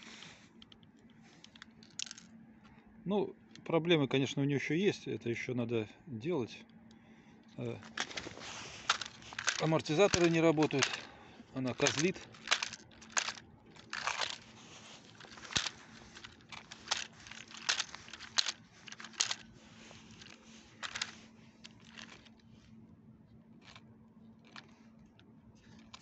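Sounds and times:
faint steady hum: 0.0 - 26.0
crackling and rustling: 7.6 - 22.8, 25.6 - 26.0.

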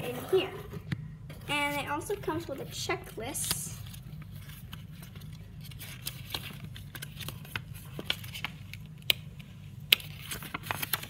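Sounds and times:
steady low hum: 0.0 - 10.8
paper crinkling and snapping: 3.2 - 11.0.

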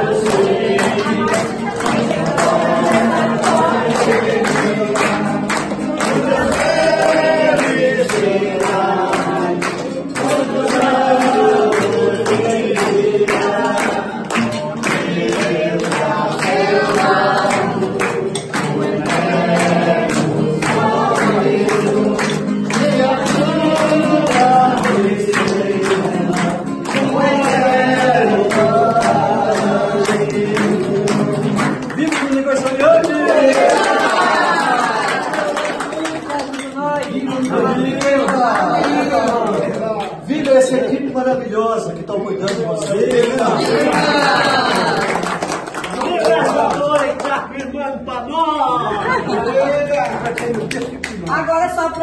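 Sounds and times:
strummed acoustic guitar: 0.0 - 33.8
hand clapping: 0.0 - 40.8, 41.9 - 52.0
group singing: 0.0 - 41.4, 42.9 - 46.7.

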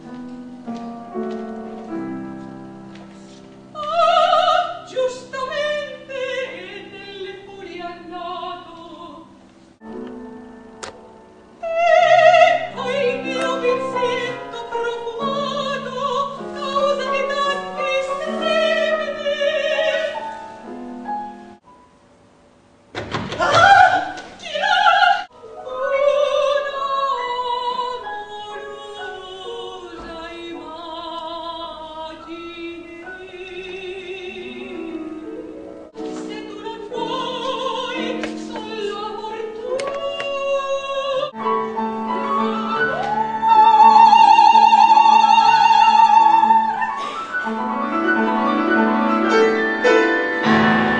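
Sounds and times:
piano accompaniment: 0.0 - 50.9
operatic soprano singing: 3.7 - 9.4, 11.6 - 20.6, 23.3 - 50.9.

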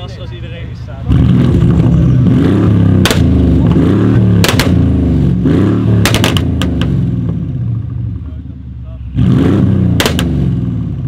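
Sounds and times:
car engine revving: 0.8 - 11.0
exhaust pops and bangs: 2.7 - 5.1, 5.9 - 7.5, 9.9 - 10.6.

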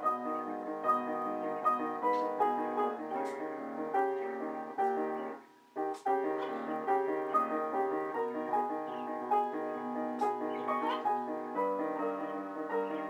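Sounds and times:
piano playing: 0.0 - 13.0.

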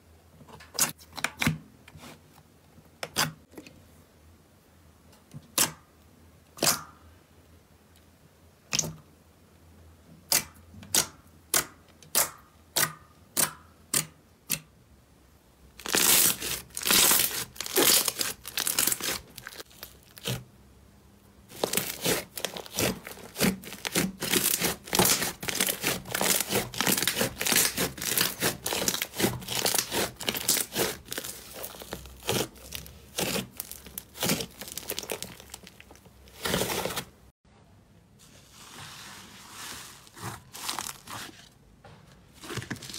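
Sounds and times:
slime crackling and popping: 15.8 - 20.4, 21.5 - 37.1
slime popping: 21.5 - 37.0.

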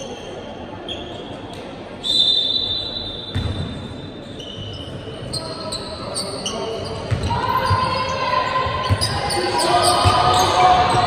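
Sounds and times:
basketball bouncing: 3.3 - 3.7, 7.1 - 7.8.

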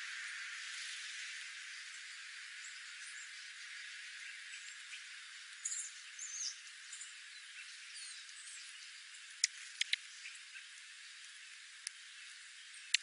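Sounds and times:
steady high hiss: 0.0 - 13.0
songbirds chirping: 0.6 - 13.0
sharp clicks: 9.4 - 10.0.

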